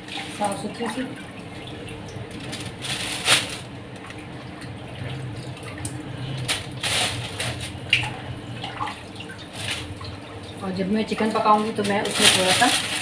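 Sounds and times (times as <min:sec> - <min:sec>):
water running from tap: 0:00.0 - 0:13.0
plastic bags crinkling: 0:02.2 - 0:04.2, 0:06.3 - 0:08.1, 0:09.4 - 0:10.2, 0:11.2 - 0:13.0.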